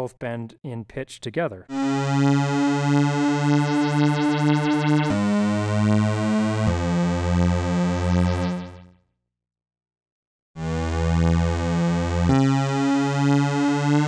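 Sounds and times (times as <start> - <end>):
buzzy pulsing synthesizer notes: 1.7 - 8.9, 10.6 - 14.0.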